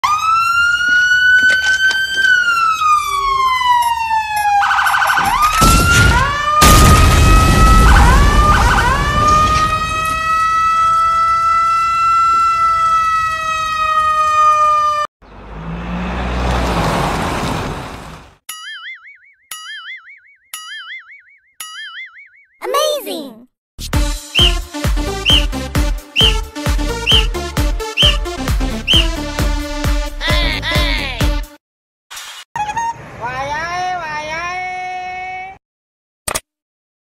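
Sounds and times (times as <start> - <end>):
fire engine siren wailing: 0.0 - 15.1, 24.4 - 25.6, 26.2 - 29.4.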